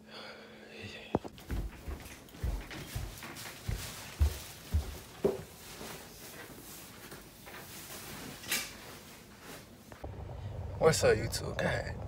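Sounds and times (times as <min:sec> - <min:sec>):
footsteps on hardwood floor: 0:01.2 - 0:08.4
shuffling: 0:01.2 - 0:10.0.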